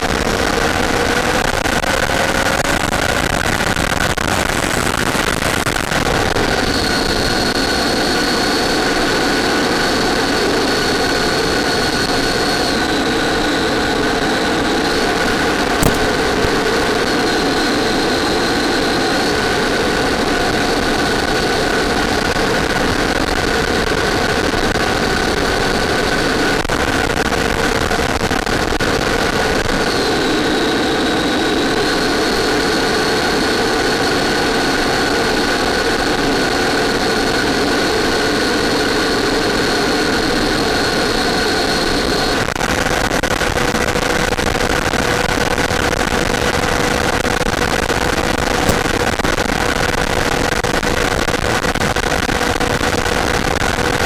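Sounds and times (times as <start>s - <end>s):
model jet motor whine: 0.0s - 42.5s.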